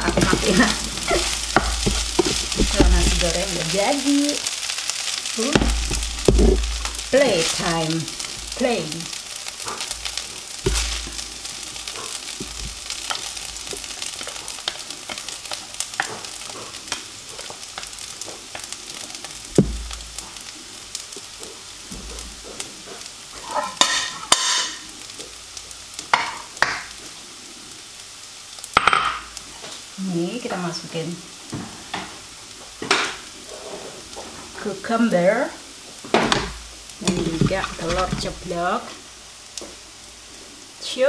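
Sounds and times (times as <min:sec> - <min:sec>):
spatula scraping and tapping: 0:00.0 - 0:03.6, 0:10.6 - 0:11.2, 0:12.0 - 0:18.7
fried rice sizzling in wok: 0:00.0 - 0:41.0.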